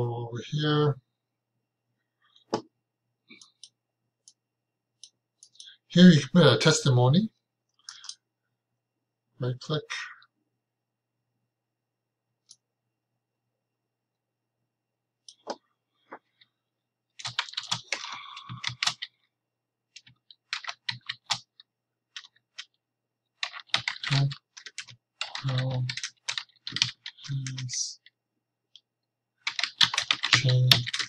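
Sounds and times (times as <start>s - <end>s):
typing on computer keyboard: 17.2s - 19.1s, 20.0s - 22.8s, 23.4s - 28.1s, 29.4s - 31.0s.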